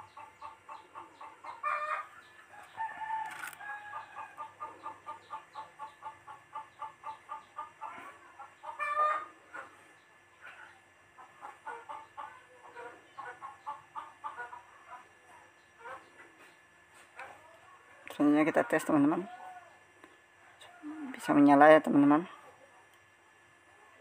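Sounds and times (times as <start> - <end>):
chickens clucking: 0.0 - 21.1.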